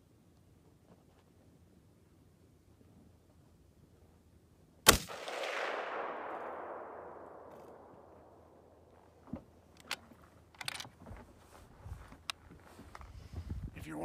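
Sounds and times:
rifle shot with rolling echo: 0:04.8 - 0:09.0.

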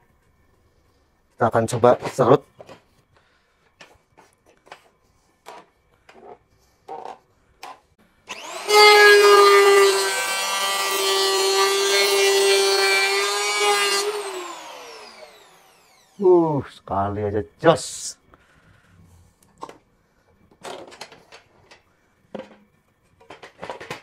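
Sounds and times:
electric hand planer whining: 0:08.3 - 0:16.2.

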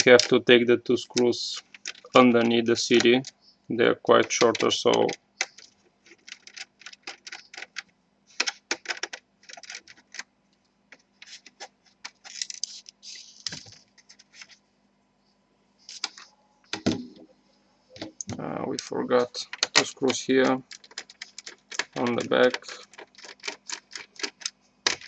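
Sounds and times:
screwdriver clicking on plastic: 0:20.6 - 0:25.0.

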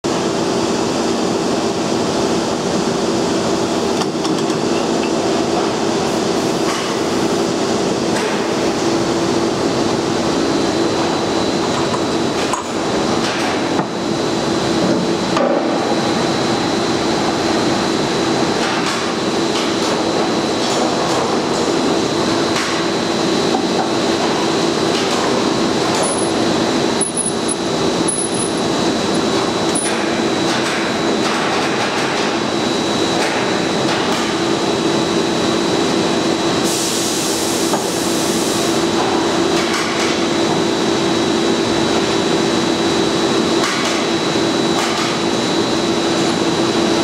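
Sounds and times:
metalworking press hum: 0:19.7 - 0:32.5
thin high whine: 0:26.0 - 0:29.9.

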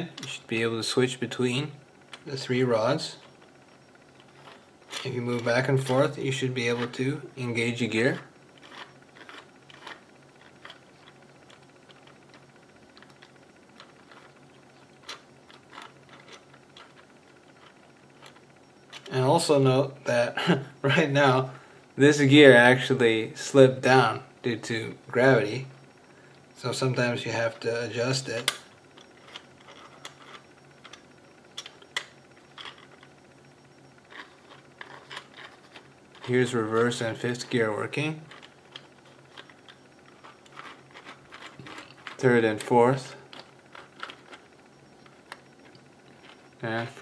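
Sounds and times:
plastic parts clicking: 0:43.3 - 0:44.4.

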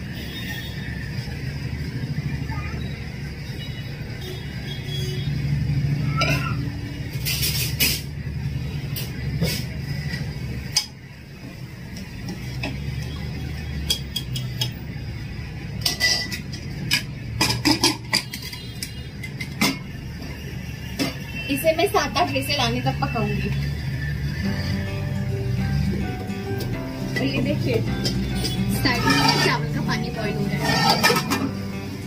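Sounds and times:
metal spoon scraping a pot: 0:15.8 - 0:19.9, 0:28.0 - 0:29.8, 0:30.4 - 0:31.6.

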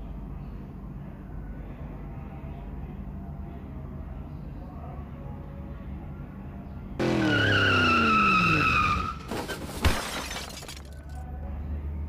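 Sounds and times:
tyre screech: 0:07.0 - 0:09.7.

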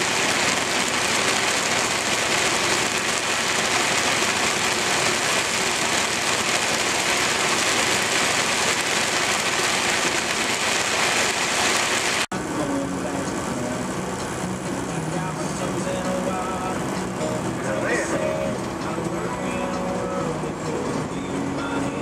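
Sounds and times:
tyre spray through water: 0:00.0 - 0:12.3
heavy rain on truck cab: 0:00.0 - 0:12.4.

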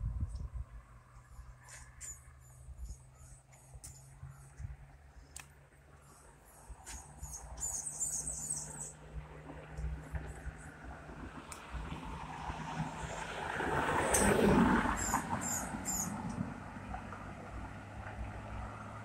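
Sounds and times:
faint wind rumble: 0:00.0 - 0:05.4.

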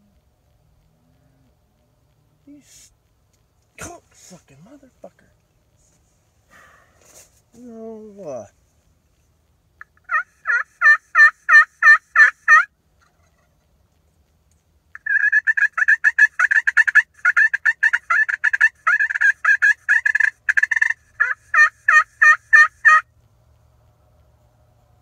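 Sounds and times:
turkey call fast cutting: 0:09.8 - 0:13.6, 0:15.0 - 0:23.1
turkey call yelps: 0:09.8 - 0:13.7, 0:14.9 - 0:23.1.

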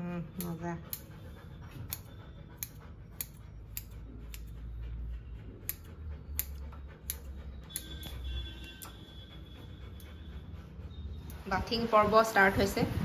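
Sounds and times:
scissors snipping through fur: 0:00.3 - 0:04.6, 0:05.6 - 0:09.0.

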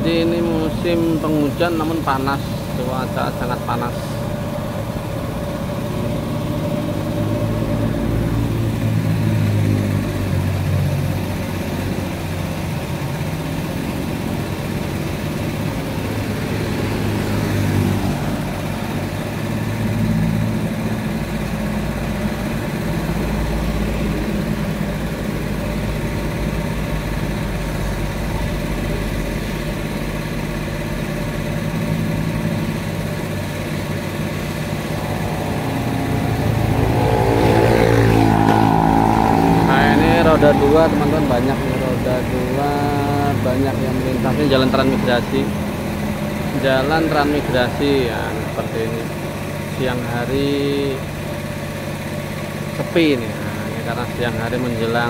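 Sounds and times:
steady low traffic drone: 0:00.0 - 0:55.0
motorcycles riding past: 0:31.9 - 0:49.0.

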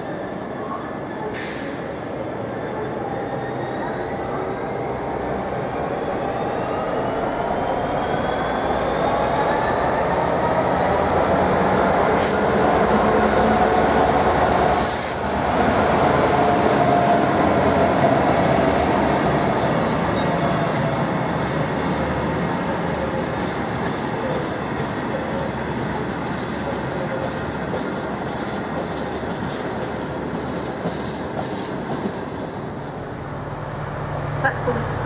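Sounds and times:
freight train passing: 0:00.0 - 0:35.0
wheels clattering on rails: 0:23.0 - 0:32.6.

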